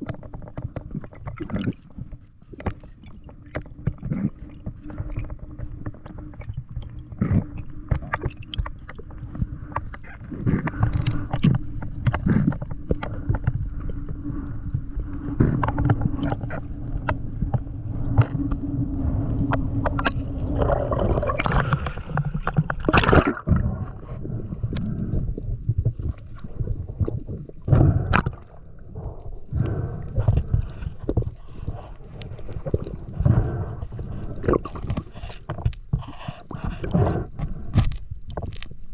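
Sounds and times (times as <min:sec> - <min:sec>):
muffled underwater gurgling: 0:00.0 - 0:38.9.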